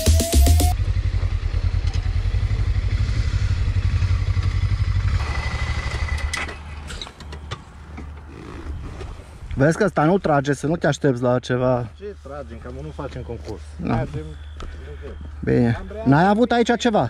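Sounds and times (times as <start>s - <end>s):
motorcycle engine idling: 0.7s - 6.3s.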